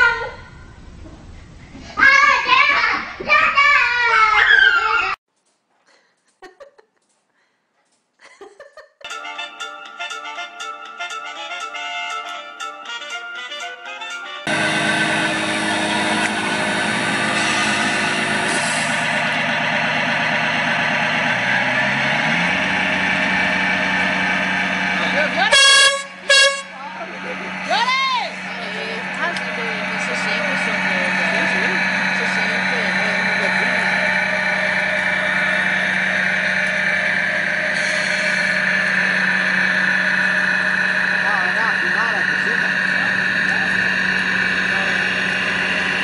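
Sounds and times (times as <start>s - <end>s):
model truck diesel engine running: 14.4s - 46.0s.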